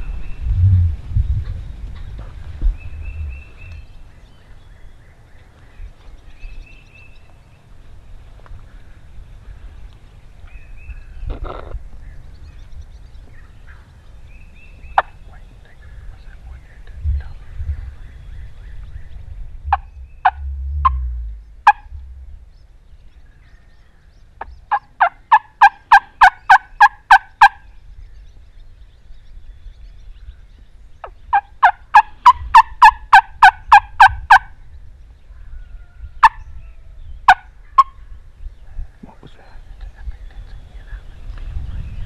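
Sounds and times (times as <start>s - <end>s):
low rumble: 0.0s - 24.7s, 38.0s - 42.0s
turkey call yelps: 21.6s - 21.9s, 31.3s - 34.5s.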